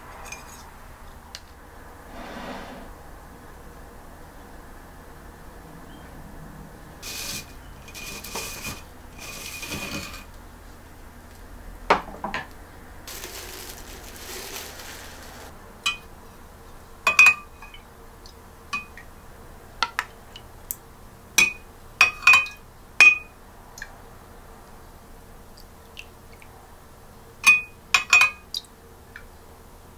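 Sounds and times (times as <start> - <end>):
ladle scraping in jar: 7.0 - 10.3.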